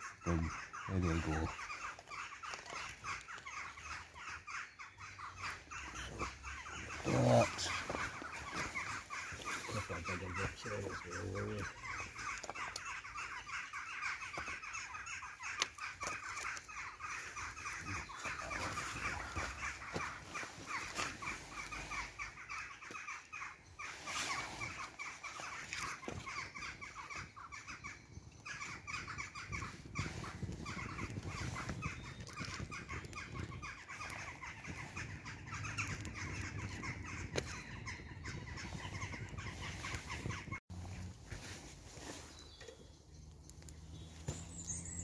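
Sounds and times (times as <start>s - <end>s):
campfire crackling and popping: 7.2s - 13.3s, 14.2s - 20.1s, 29.8s - 37.6s.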